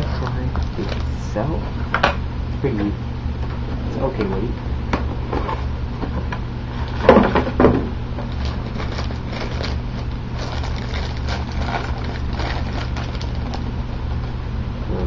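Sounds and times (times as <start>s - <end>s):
plastic bag crinkling: 0.0s - 1.4s, 8.2s - 14.4s
steady low hum: 0.0s - 15.0s.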